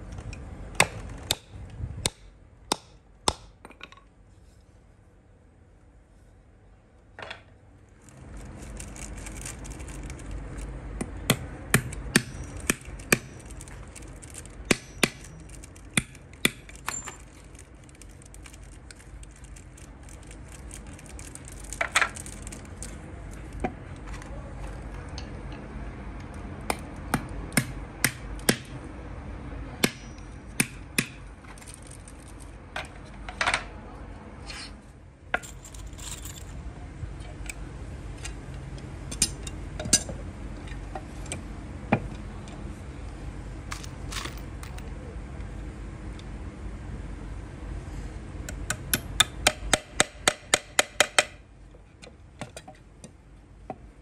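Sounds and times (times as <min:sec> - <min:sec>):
steady low hum: 0:00.0 - 0:54.0
hammer tapping metal fittings: 0:48.5 - 0:51.4.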